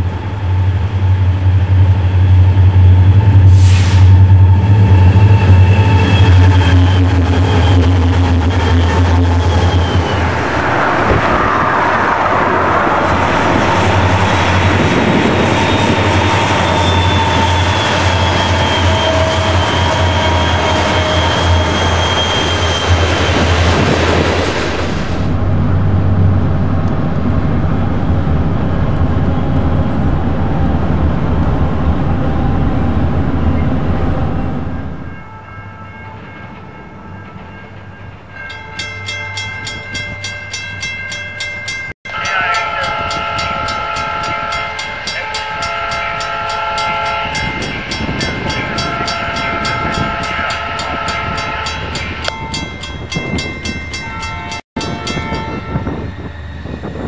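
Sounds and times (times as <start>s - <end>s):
freight train rumbling: 0.0s - 57.0s
crossing bell ringing: 35.0s - 56.1s.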